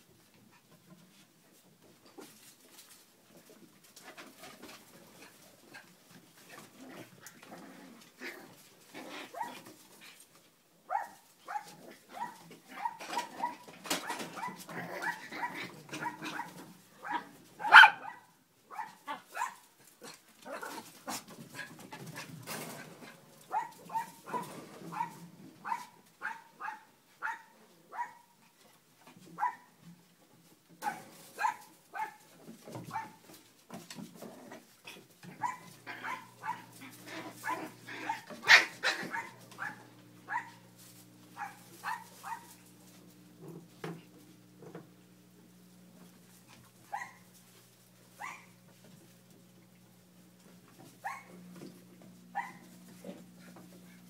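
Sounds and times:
dogs barking and yipping: 0:10.9 - 0:19.7, 0:20.6 - 0:28.3, 0:30.8 - 0:33.3, 0:35.2 - 0:42.8, 0:46.8 - 0:47.4, 0:48.1 - 0:48.7, 0:50.9 - 0:54.0.

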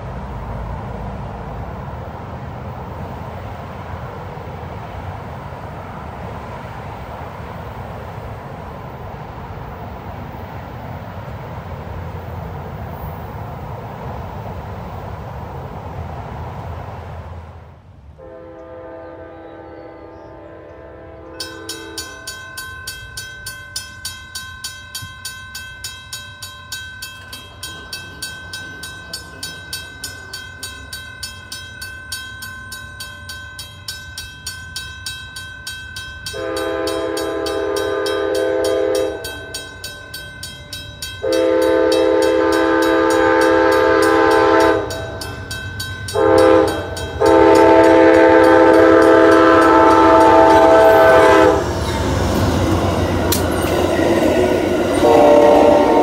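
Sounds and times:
train horn blasts: 0:18.2 - 0:22.3, 0:36.3 - 0:39.6, 0:41.2 - 0:45.3, 0:46.1 - 0:56.0
crossing warning bell ringing: 0:18.2 - 0:56.0.

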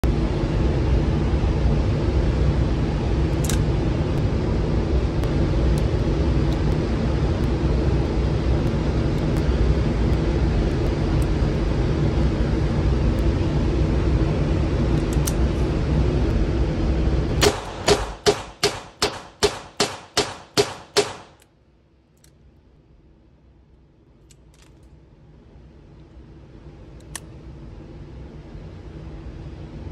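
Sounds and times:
steady low hum: 0:00.0 - 0:29.9
revolver shots in rapid succession: 0:17.4 - 0:21.4.

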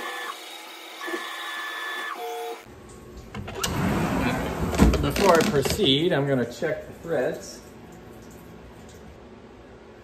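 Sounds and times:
mill motors whining: 0:00.0 - 0:02.7.

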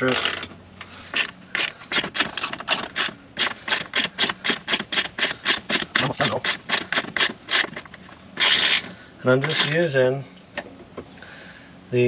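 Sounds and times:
ratchet pawl rasping: 0:01.1 - 0:09.8.

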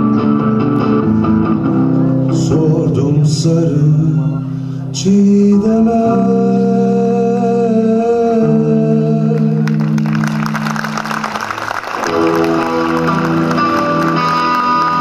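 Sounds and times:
electric guitar chords ringing: 0:00.0 - 0:15.0
audience applause: 0:09.6 - 0:15.0.

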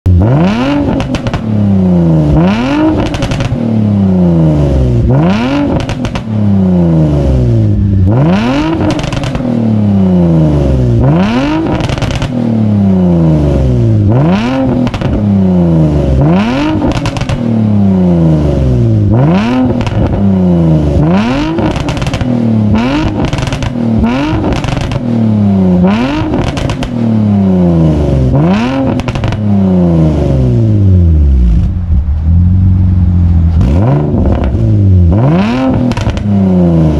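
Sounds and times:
car engine revving: 0:00.1 - 0:36.9
exhaust pops: 0:00.8 - 0:01.5, 0:02.9 - 0:03.6, 0:05.6 - 0:06.4, 0:08.0 - 0:09.6, 0:11.6 - 0:12.4, 0:14.6 - 0:15.3, 0:16.7 - 0:17.6, 0:21.5 - 0:25.1, 0:26.2 - 0:27.0, 0:28.8 - 0:29.5, 0:33.3 - 0:36.3.

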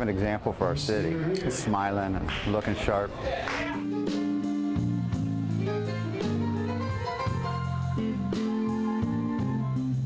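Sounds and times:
blues band playing: 0:03.6 - 0:10.0.

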